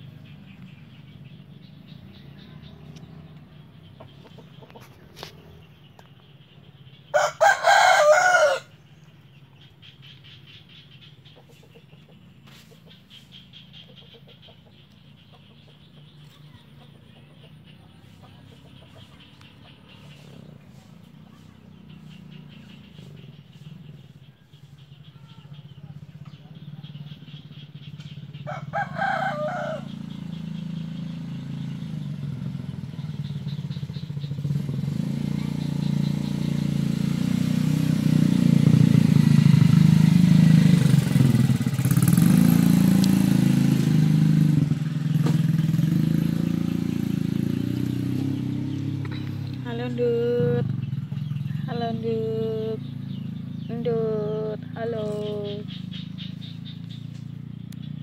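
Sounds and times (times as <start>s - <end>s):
vehicle engine rumble: 0.0s - 58.0s
rooster crowing: 7.1s - 8.8s, 28.4s - 30.1s.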